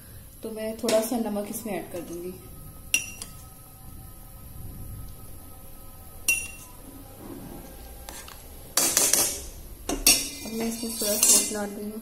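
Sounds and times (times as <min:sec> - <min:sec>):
low steady background noise: 0:00.0 - 0:12.0
metal utensil clinking on dish: 0:08.8 - 0:11.7.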